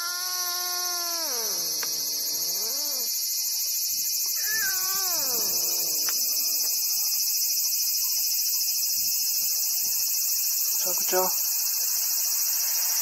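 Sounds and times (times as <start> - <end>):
cat meowing: 0.0 - 3.1, 4.4 - 6.7
high-pitched insect chorus: 0.0 - 13.0.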